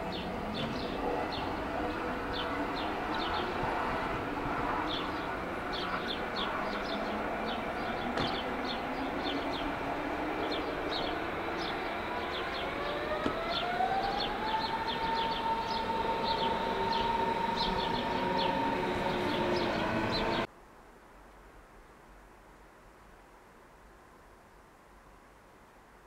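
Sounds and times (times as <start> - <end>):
birds chirping: 0.0 - 20.5
electric train motors whining: 0.0 - 20.5
train rumble: 0.0 - 20.5.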